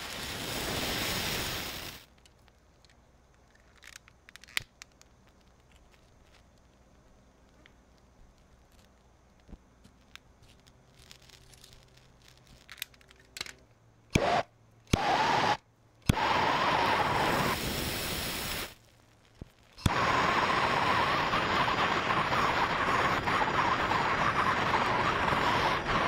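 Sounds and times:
propane torch hissing: 0.0 - 2.1, 14.1 - 18.8, 19.8 - 26.0
torch ignition click: 12.8 - 18.8, 19.8 - 26.0.

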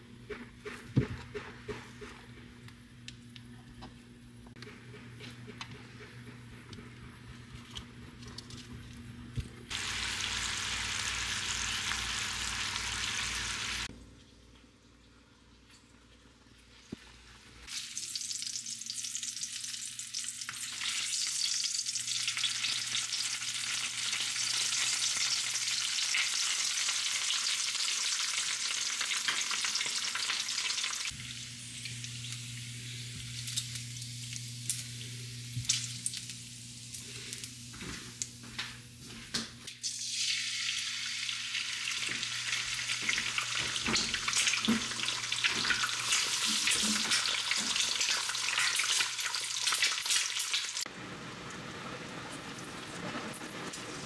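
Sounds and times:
bacon sizzling in a frying pan: 9.7 - 13.9, 17.6 - 37.7, 39.7 - 54.0
egg frying: 9.7 - 13.9, 16.9 - 37.6, 39.7 - 54.0.

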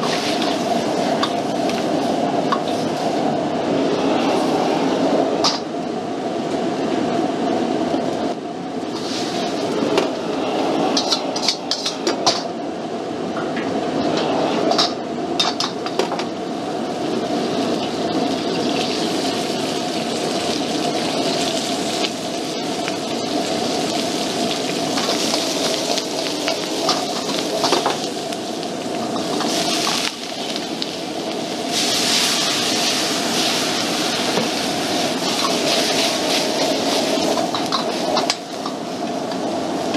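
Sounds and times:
food sizzling in a wok: 0.0 - 5.7, 8.8 - 12.5, 14.0 - 39.9
gas burners roaring: 0.0 - 39.9
metal clicks of wok and utensils: 11.0 - 12.5.

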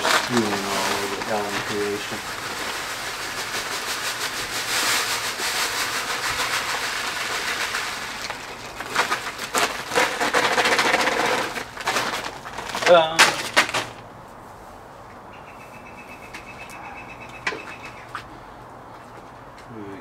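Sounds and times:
grain pouring gritty hiss: 0.0 - 12.8
plastic bag crinkling: 0.0 - 14.0.

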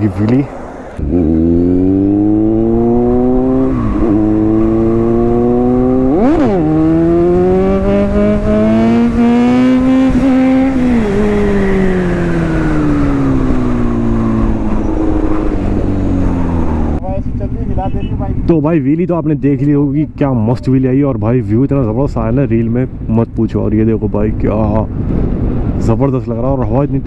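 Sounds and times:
motorcycle engine revving: 0.5 - 20.3.

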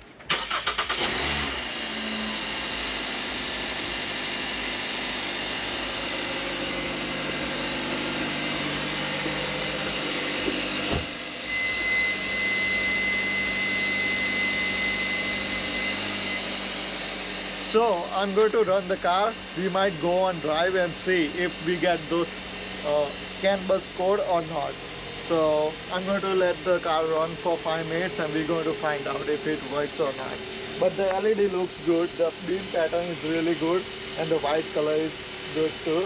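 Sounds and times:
car engine starting and idling: 0.0 - 36.0
thin high tone: 5.6 - 19.0.

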